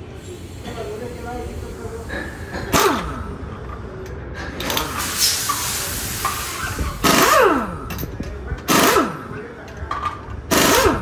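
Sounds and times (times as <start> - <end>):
air hissing: 0.0 - 3.4, 4.6 - 7.8
pneumatic impact wrench bursts: 1.6 - 3.4, 4.6 - 9.4, 10.5 - 11.0.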